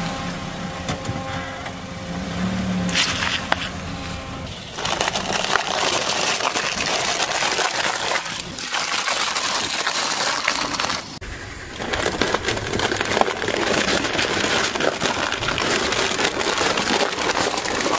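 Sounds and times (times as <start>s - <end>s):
foil trays crushed under tyre: 4.5s - 11.2s, 11.8s - 17.9s.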